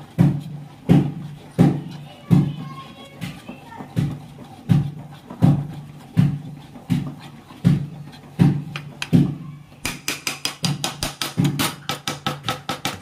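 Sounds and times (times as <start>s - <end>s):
thick dough stirred with thuds: 0.0s - 13.0s
utensil clicking against pot: 3.2s - 9.2s, 9.8s - 13.0s.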